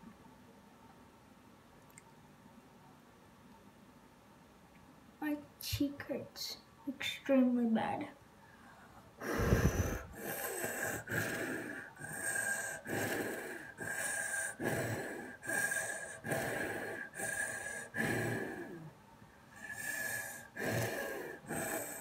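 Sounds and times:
child puffing with whistling tone: 0:09.2 - 0:18.7.

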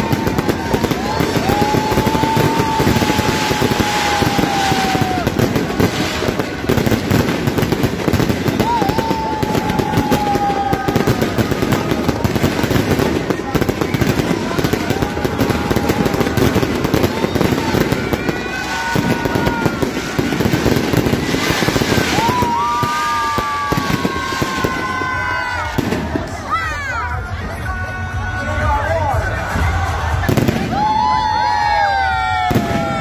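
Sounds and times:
fireworks crackling and popping: 0:00.0 - 0:27.1, 0:29.3 - 0:33.0.

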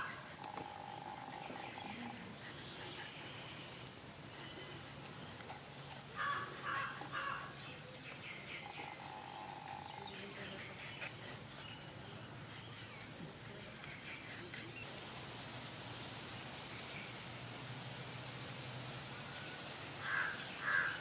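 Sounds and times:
birds chirping and calling: 0:00.0 - 0:14.9, 0:20.0 - 0:21.0
faint high hiss: 0:00.0 - 0:21.0.

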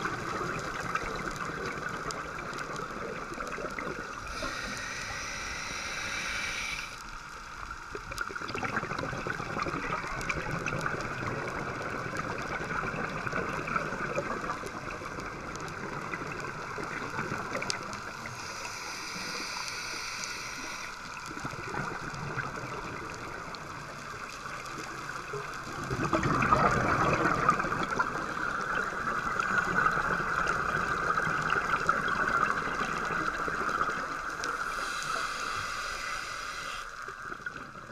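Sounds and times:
rumble of exhaled bubbles: 0:00.0 - 0:06.4, 0:07.8 - 0:18.4, 0:21.1 - 0:34.9
scuba regulator breathing underwater: 0:04.1 - 0:07.1, 0:17.6 - 0:21.5, 0:33.9 - 0:37.2.

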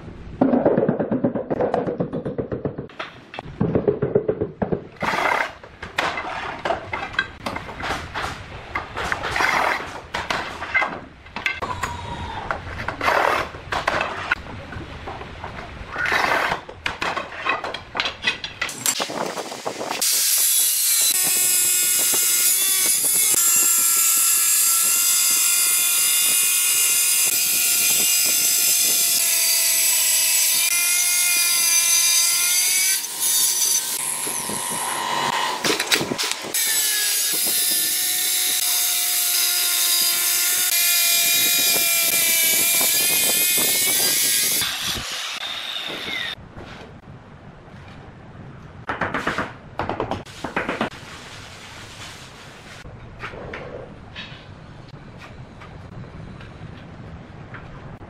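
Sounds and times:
angle grinder whine: 0:33.0 - 0:35.9.

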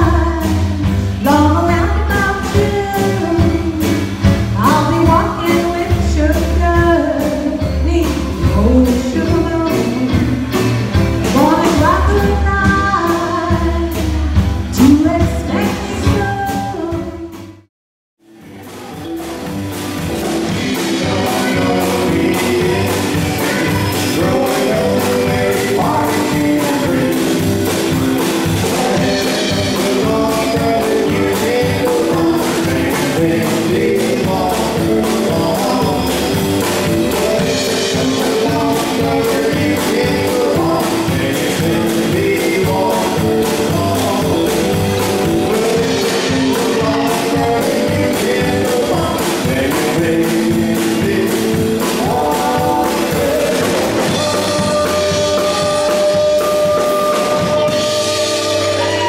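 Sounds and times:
electric guitar: 0:00.0 - 0:17.6, 0:18.2 - 0:59.0
live band playing: 0:00.0 - 0:59.0
people singing: 0:08.5 - 0:16.9, 0:18.4 - 0:59.0.

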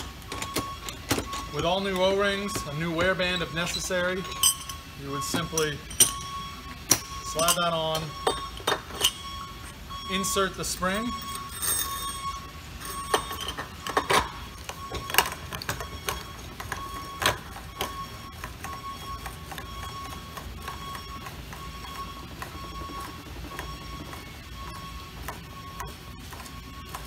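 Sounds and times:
metal parts clinking and scraping: 0:00.0 - 0:10.4, 0:11.0 - 0:17.5.

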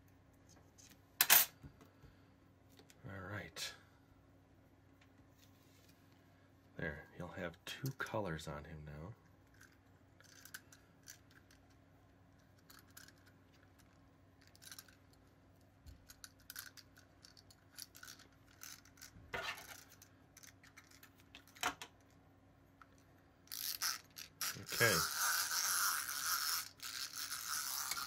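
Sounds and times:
clay handling ticks and rustles: 0:00.0 - 0:03.5, 0:04.9 - 0:28.0
faint steady hum: 0:00.0 - 0:28.0.

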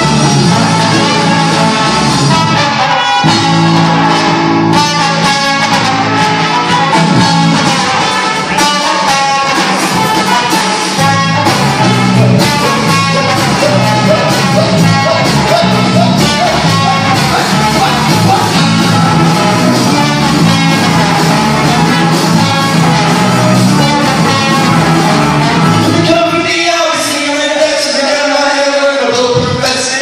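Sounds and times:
horn section: 0:00.0 - 0:30.0
ska-punk band playing: 0:00.0 - 0:30.0.

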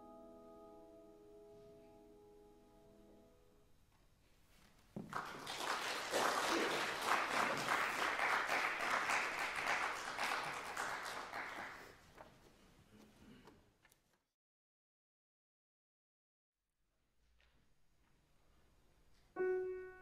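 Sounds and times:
audience applauding: 0:05.0 - 0:12.1.

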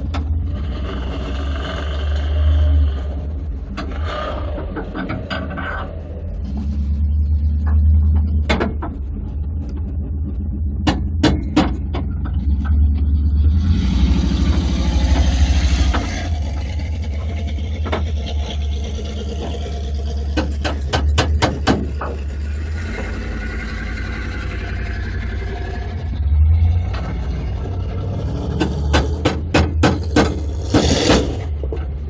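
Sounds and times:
sharp clicks and knocks: 0:00.0 - 0:01.0, 0:03.7 - 0:13.2, 0:14.3 - 0:25.0, 0:26.1 - 0:32.0
vehicle engine running: 0:00.0 - 0:32.0
tyres on gravel: 0:07.5 - 0:32.0.

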